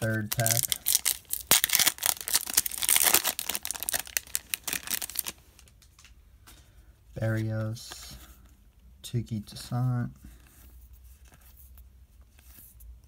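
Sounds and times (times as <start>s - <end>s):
foil wrapper tearing and crinkling: 0.0s - 5.7s.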